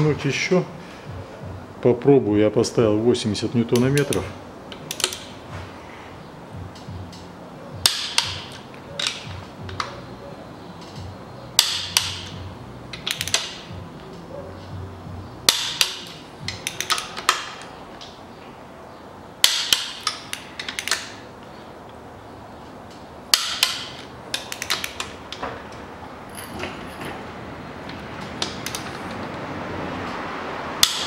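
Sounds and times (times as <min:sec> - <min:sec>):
ratchet clicks: 0:03.8 - 0:05.3, 0:10.8 - 0:13.8, 0:15.5 - 0:18.1, 0:19.4 - 0:21.2, 0:23.3 - 0:25.4, 0:28.4 - 0:29.2, 0:30.8 - 0:31.0
torque wrench clicking: 0:03.8 - 0:05.3, 0:11.6 - 0:13.7, 0:15.5 - 0:18.1, 0:19.4 - 0:21.2, 0:23.3 - 0:25.2, 0:28.4 - 0:29.1, 0:30.8 - 0:31.0.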